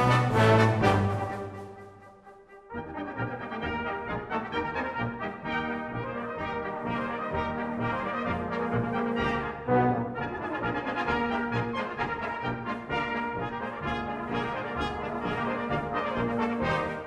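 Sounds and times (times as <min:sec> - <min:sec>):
brass band playing chords: 0:00.0 - 0:17.0.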